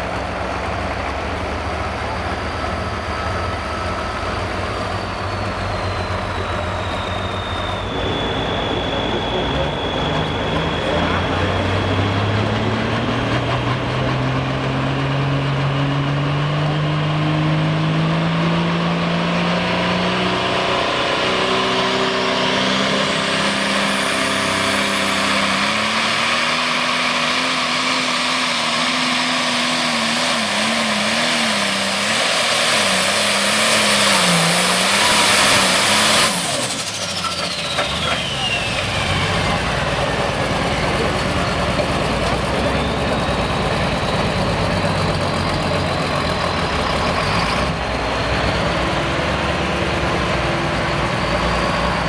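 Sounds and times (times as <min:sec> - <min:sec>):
tractor engine at full throttle: 0:00.0 - 0:52.0
high whine: 0:00.8 - 0:14.2.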